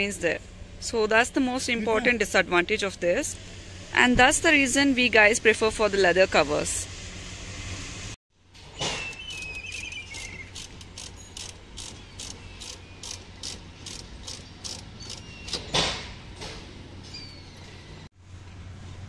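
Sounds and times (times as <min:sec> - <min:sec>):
ratchet wrench clicking: 0:09.4 - 0:15.6.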